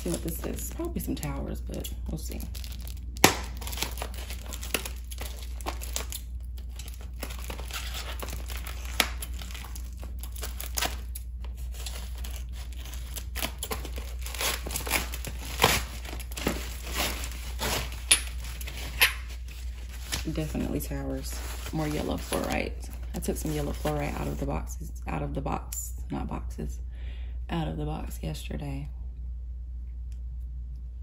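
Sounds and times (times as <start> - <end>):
plastic wrap crinkling and tearing: 0.0 - 1.4, 2.1 - 24.5.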